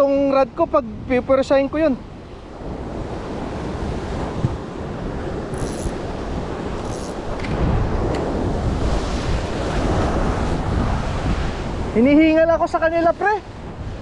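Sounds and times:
ocean surf breaking on rocks: 0.0s - 14.0s
wind buffeting microphone: 0.0s - 14.0s.

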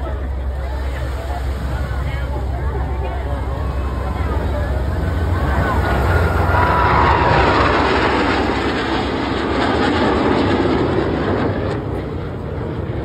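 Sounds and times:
fighter jets rushing past: 0.6s - 13.0s.

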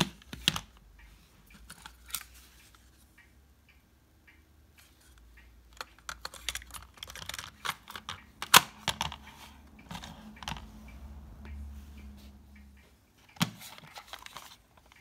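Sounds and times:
cassette tape plastic rattling: 5.8s - 10.6s.

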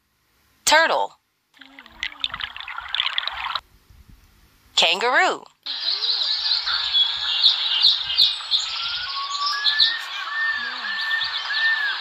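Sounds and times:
birdsong chirps and whistles: 5.7s - 12.0s.

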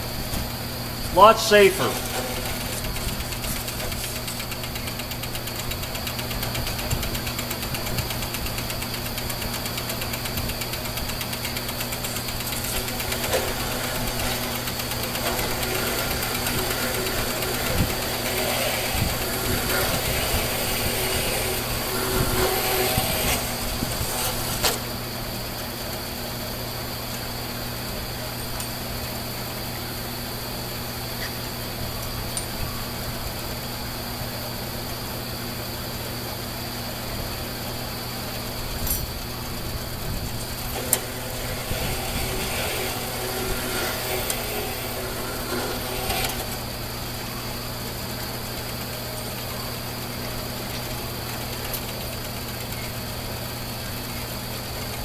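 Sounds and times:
band saw cutting steel: 1.1s - 4.6s, 10.6s - 25.0s, 40.5s - 47.1s.

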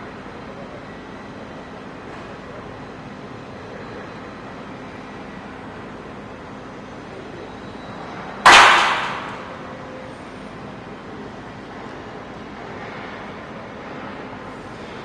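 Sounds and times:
low background hum: 8.4s - 10.3s
hammer striking steel plate: 8.5s - 9.6s.

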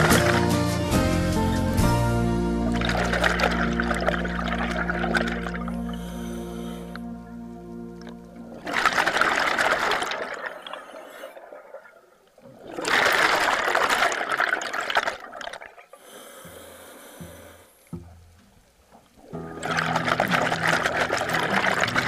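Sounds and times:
air bubbles from diver's regulator: 2.6s - 7.2s, 8.0s - 16.0s, 19.2s - 22.0s
quiet hiss: 4.4s - 8.8s, 15.4s - 19.6s.

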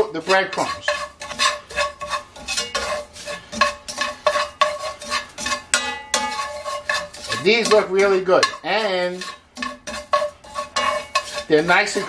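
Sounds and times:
metal tongs scraping a pan: 0.0s - 12.0s.

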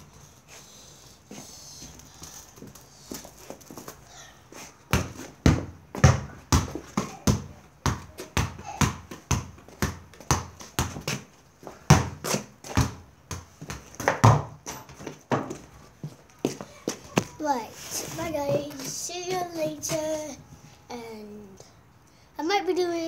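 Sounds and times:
football thudding touches: 4.9s - 11.2s.

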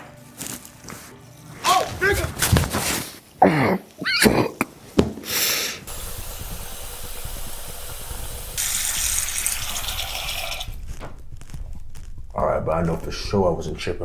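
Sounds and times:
tap water running into sink: 5.9s - 10.7s.

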